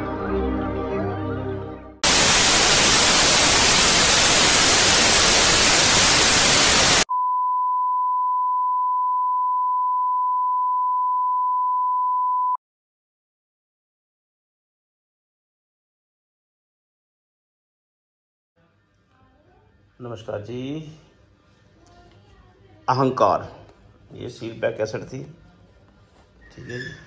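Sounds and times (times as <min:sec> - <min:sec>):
television static hiss: 0:02.0 - 0:07.1.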